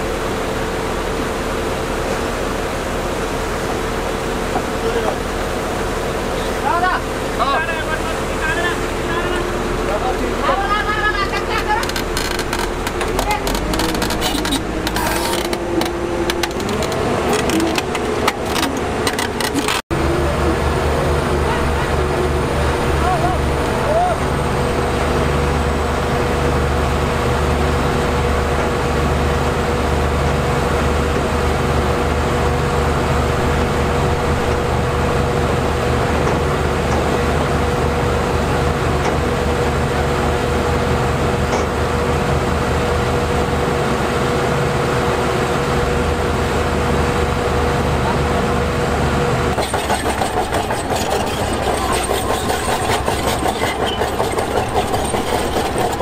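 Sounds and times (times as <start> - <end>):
heavy diesel engine running: 0.0 - 56.0
steady whine: 0.0 - 56.0
rapid clanking rattle: 11.4 - 19.8, 49.5 - 56.0.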